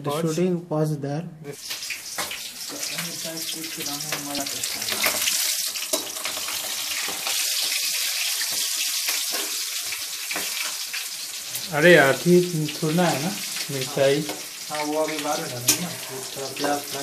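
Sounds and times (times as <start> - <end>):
hot oil sizzling and crackling: 1.5 - 17.0
metal spatula stirring: 3.8 - 7.8, 8.4 - 10.9, 15.2 - 17.0.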